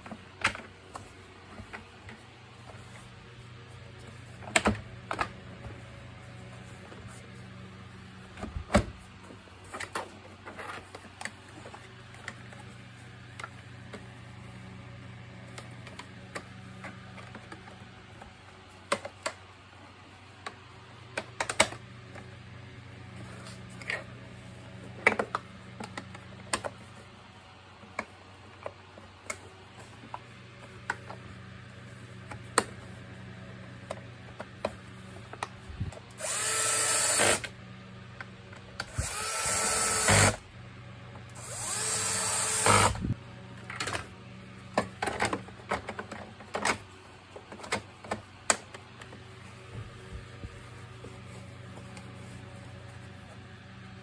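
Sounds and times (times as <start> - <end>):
plastic parts clicking and knocking: 20.4 - 21.8, 44.7 - 49.2
cordless drill motor whining: 36.2 - 37.5, 38.8 - 40.4, 41.4 - 43.1.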